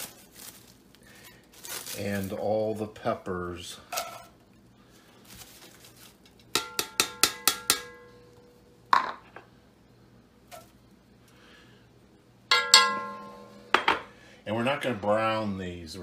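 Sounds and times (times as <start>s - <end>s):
ringing taps on cast iron pot: 6.6s - 8.2s, 12.5s - 14.0s.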